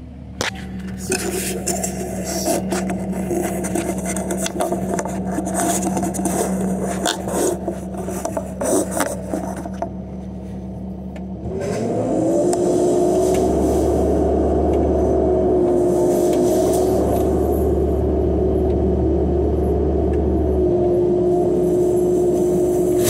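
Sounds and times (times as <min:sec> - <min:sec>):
excavator engine running: 0:00.0 - 0:23.0
flail mower whining: 0:00.0 - 0:23.0
clicks and scrapes: 0:00.4 - 0:10.0.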